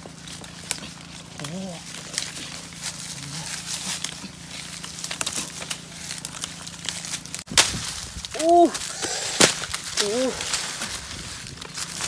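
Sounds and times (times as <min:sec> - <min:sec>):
bare feet on dry leaves: 0:00.0 - 0:12.0
rustle of leaves and twigs: 0:00.0 - 0:12.0.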